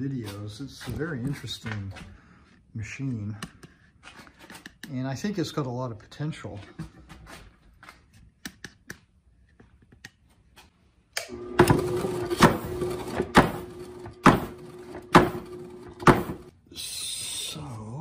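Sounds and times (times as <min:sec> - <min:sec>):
stamp striking ore heavily: 0:13.3 - 0:15.4, 0:16.0 - 0:16.5.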